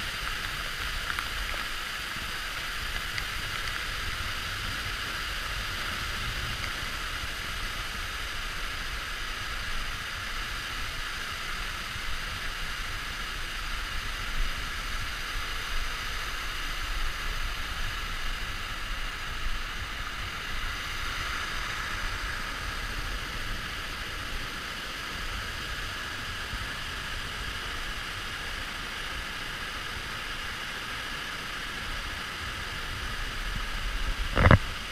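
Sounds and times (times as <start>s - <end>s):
waterfall rushing: 0.0s - 34.9s.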